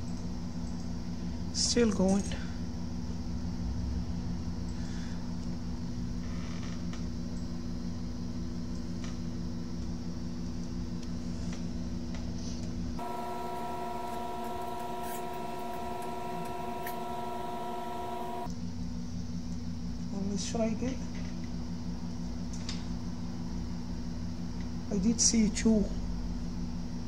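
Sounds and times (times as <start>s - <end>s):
electrical hum: 13.0s - 18.5s
high steady whine: 13.0s - 18.5s.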